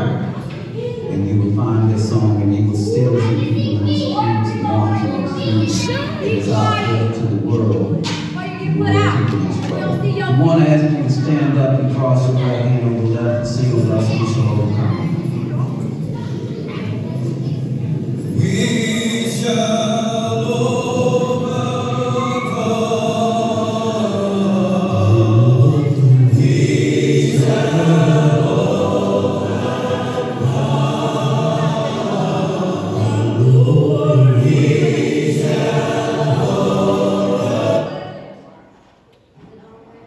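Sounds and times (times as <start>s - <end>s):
choir singing: 3.3s - 7.6s, 17.9s - 38.8s.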